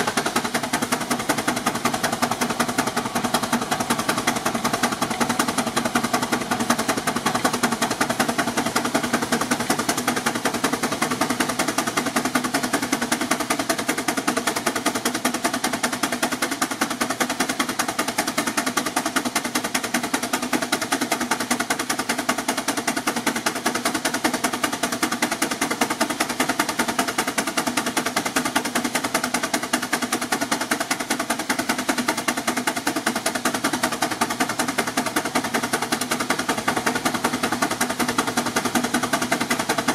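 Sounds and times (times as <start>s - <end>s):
steam engine exhaust chuffing: 0.0s - 39.9s.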